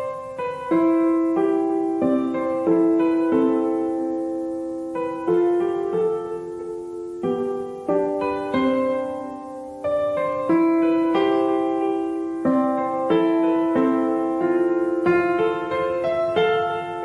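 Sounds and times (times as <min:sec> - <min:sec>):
gentle piano music: 0:00.0 - 0:17.0.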